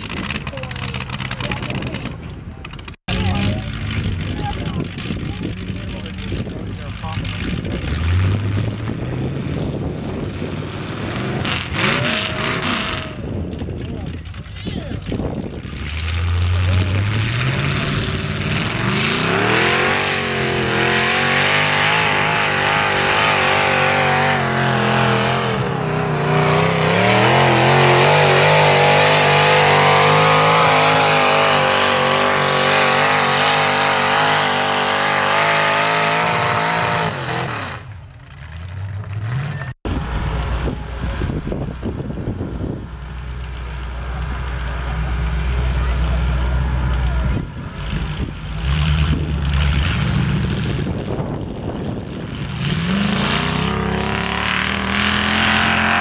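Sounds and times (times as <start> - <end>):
tractor engine revving under load: 15.0 - 56.0.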